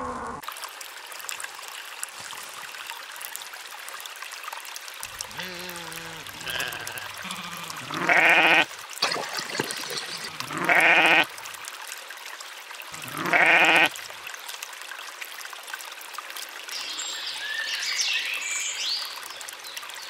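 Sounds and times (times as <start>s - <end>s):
water trickling: 0.4s - 20.0s
sheep bleating: 5.3s - 8.7s, 10.4s - 11.3s, 13.0s - 13.9s.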